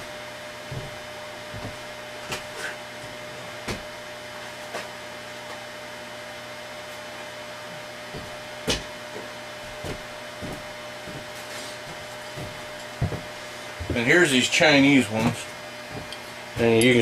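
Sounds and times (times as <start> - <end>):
room tone hiss and hum: 0.0 - 17.0.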